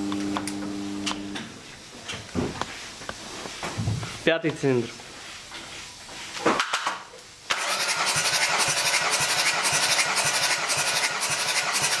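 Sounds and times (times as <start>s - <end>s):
engine starter whirring: 7.5s - 12.0s.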